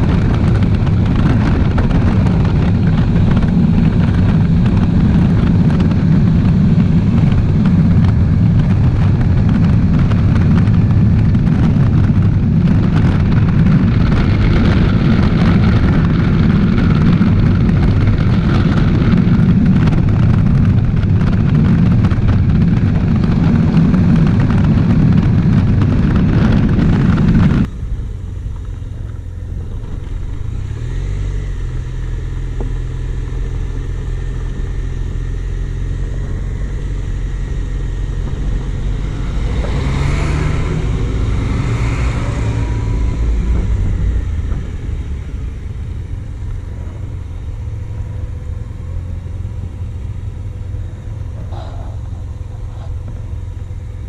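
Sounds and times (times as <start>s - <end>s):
scooter engine running: 0.0s - 54.0s
wind and road noise: 0.0s - 54.0s
vehicle passing: 51.0s - 53.1s.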